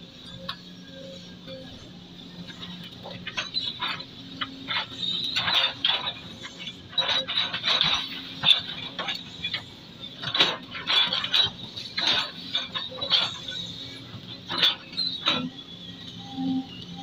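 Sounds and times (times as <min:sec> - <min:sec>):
excavator bucket crunching and scraping: 0:02.4 - 0:15.6.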